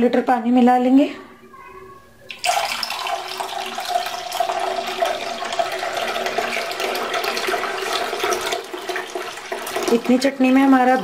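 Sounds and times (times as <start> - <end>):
water pouring into liquid: 2.3 - 11.0.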